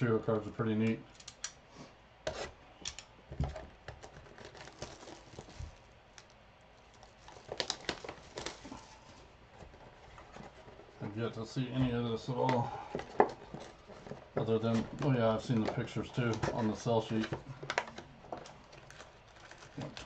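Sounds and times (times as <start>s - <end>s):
wrappers crinkling and rustling: 3.5s - 11.1s, 11.8s - 20.0s.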